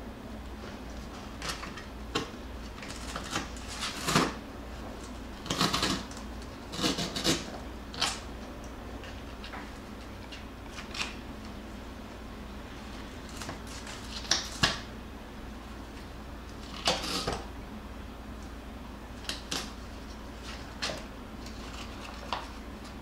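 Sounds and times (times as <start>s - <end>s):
puppies rustling and scratching: 19.9s - 23.0s.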